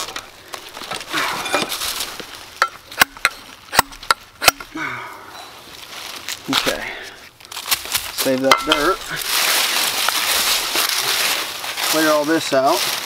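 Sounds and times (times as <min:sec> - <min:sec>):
digging tool scraping soil: 0:07.9 - 0:12.8
tool knocking on ground: 0:08.5 - 0:08.9.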